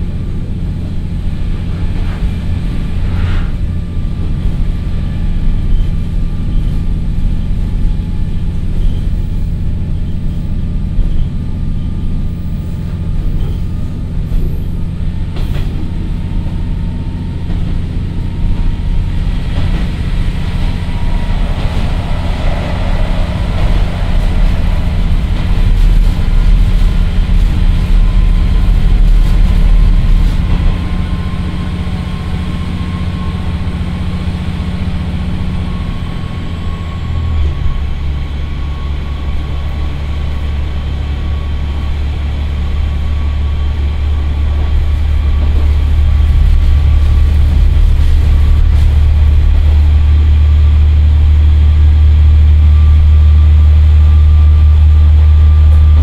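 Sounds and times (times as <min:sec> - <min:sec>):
diesel engine drone: 0:00.0 - 0:56.0
faint rising whine: 0:19.9 - 0:39.3.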